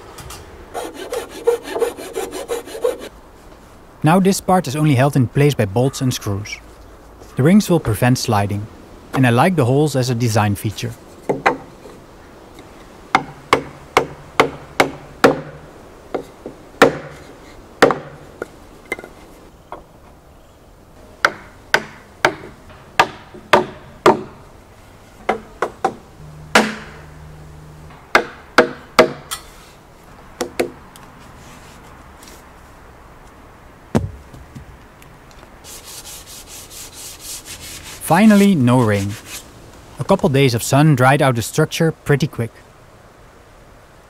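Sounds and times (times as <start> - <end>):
hammer knocking on wooden block: 21.2 - 24.3.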